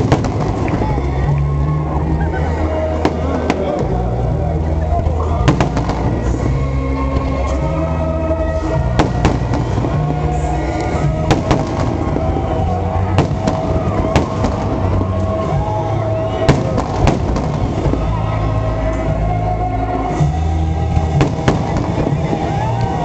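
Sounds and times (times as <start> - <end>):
fireworks bursting with sharp bangs: 0.0 - 1.6, 5.4 - 7.7, 8.6 - 18.5, 20.3 - 23.0
music: 0.0 - 23.0.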